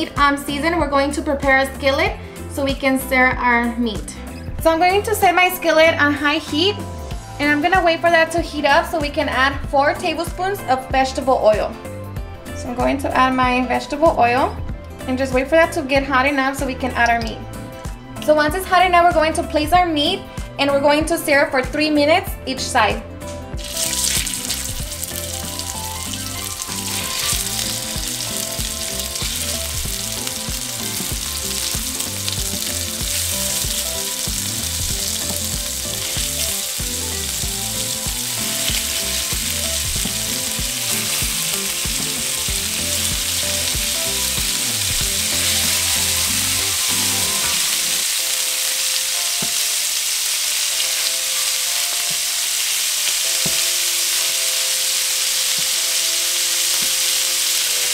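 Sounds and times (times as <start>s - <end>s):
meat sizzling in hot oil: 23.6s - 57.9s.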